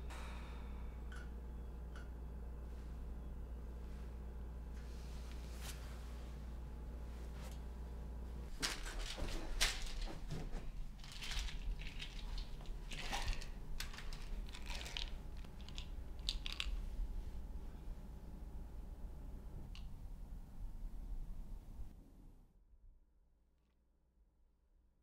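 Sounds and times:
low steady hum: 0.0s - 22.6s
pill bottle rattling: 11.0s - 16.8s.

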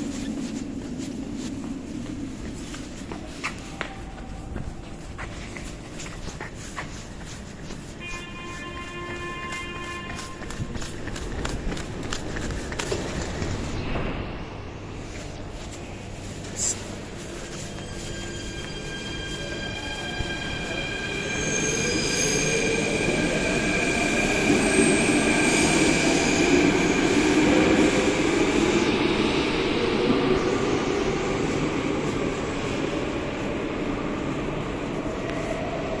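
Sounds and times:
underground train rumble: 0.0s - 36.0s.

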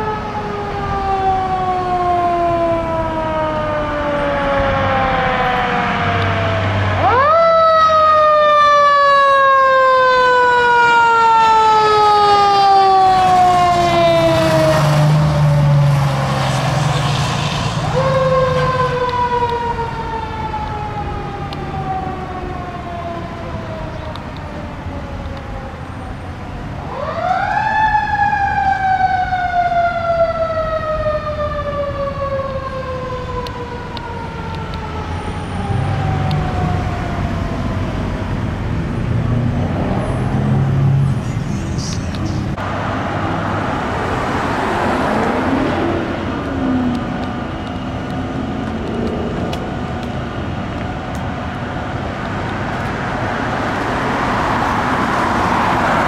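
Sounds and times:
mechanical fire engine siren: 0.0s - 41.6s
vehicle engines in traffic: 0.0s - 56.0s.

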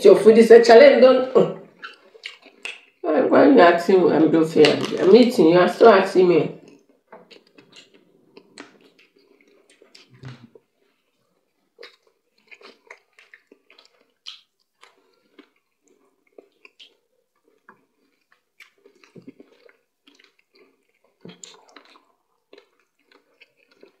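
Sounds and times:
fingers squishing food: 1.6s - 3.0s, 6.6s - 24.0s
wet chewing smacks: 1.6s - 3.0s, 6.6s - 24.0s.

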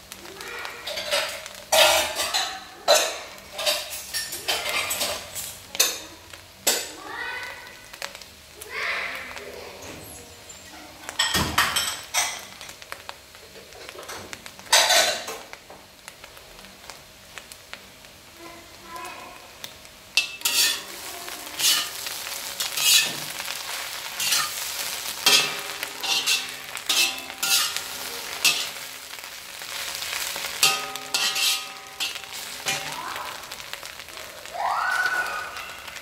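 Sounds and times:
utensils clattering against pots: 0.7s - 7.0s, 9.7s - 12.8s, 13.4s - 15.6s, 20.2s - 34.1s.

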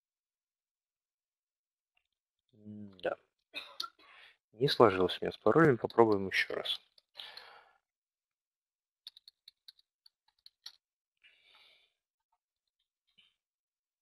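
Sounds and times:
faint keyboard typing: 9.1s - 10.8s.

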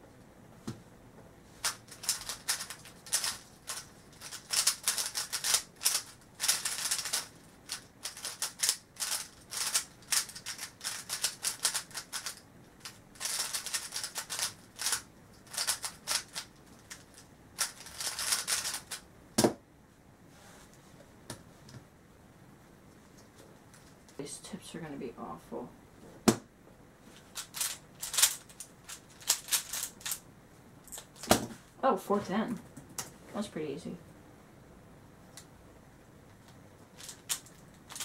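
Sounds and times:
plastic puzzle cube clacking: 1.6s - 19.0s, 27.4s - 30.2s, 37.0s - 38.0s
cube knocking down on mat: 31.3s - 31.6s.

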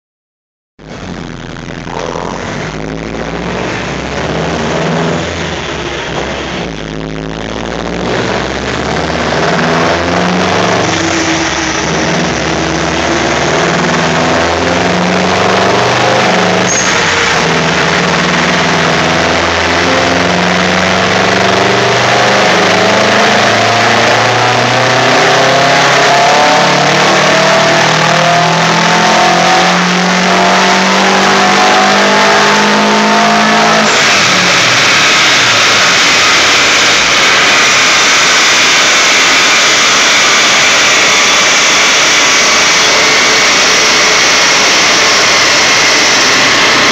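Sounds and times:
steady rushing noise: 0.8s - 24.3s, 33.8s - 46.9s
car engine revving under load: 0.8s - 46.9s.

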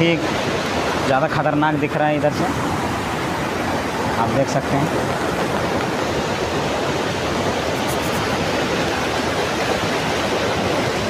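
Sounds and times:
river rushing over rocks: 0.0s - 11.0s.

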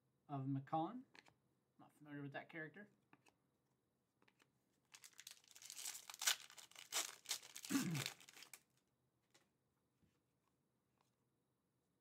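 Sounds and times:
foil wrapper tearing and crinkling: 4.9s - 8.6s.

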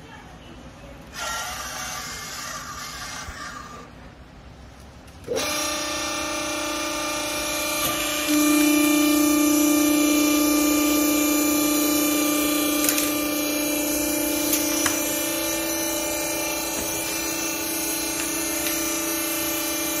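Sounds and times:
hydraulic pump motor humming: 5.2s - 20.0s.

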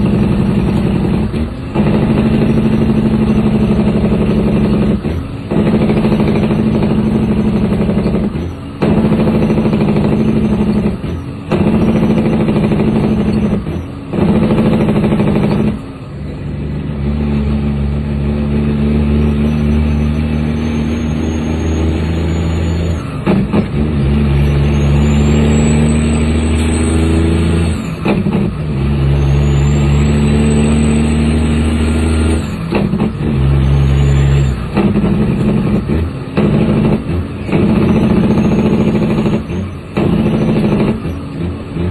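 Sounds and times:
truck diesel engine: 0.0s - 41.9s
turbo whistle: 19.1s - 23.1s, 24.4s - 27.3s, 29.1s - 32.0s, 33.6s - 34.6s, 37.7s - 39.4s.

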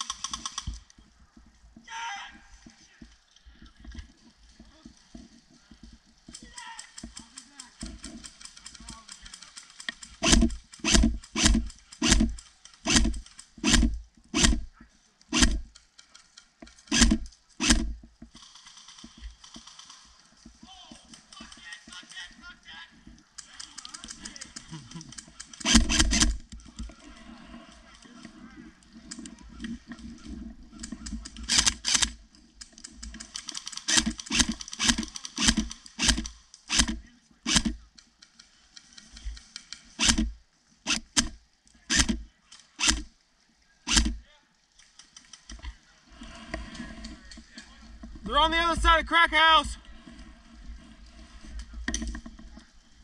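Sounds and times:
airsoft rifle shots: 10.0s - 14.7s, 15.3s - 15.7s, 16.9s - 20.0s, 25.4s - 26.4s, 33.3s - 37.8s, 40.9s - 42.2s.

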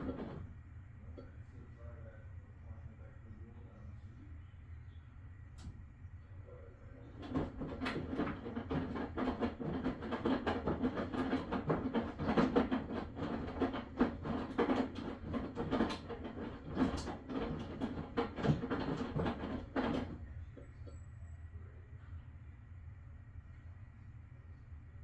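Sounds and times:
washing machine knocking and clattering: 0.0s - 0.6s, 7.0s - 20.9s.

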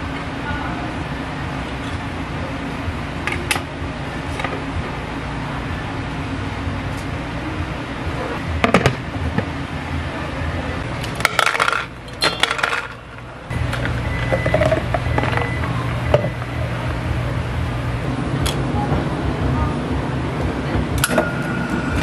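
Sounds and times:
machine hum: 0.0s - 22.0s
dishes clinking: 11.2s - 13.0s.

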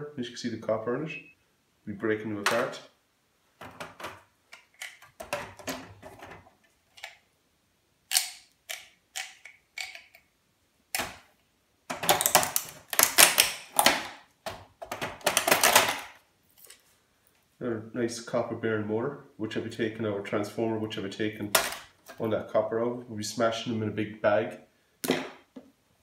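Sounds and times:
pliers prying plastic and metal: 8.1s - 10.2s, 11.9s - 16.1s
plastic and metal clicking and snapping: 11.9s - 16.2s.

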